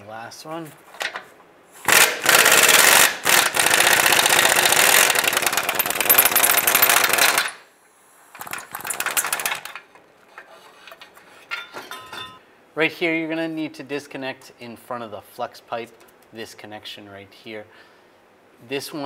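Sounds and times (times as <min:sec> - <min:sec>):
power wrench rattling: 0:01.8 - 0:07.6, 0:08.3 - 0:12.3.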